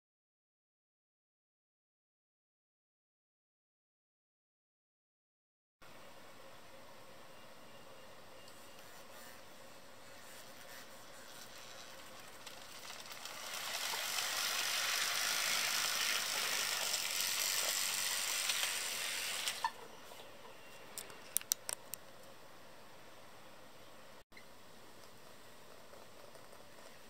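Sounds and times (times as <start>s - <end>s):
model train rattling whir: 11.4s - 19.7s
sharp clicks: 20.9s - 22.1s.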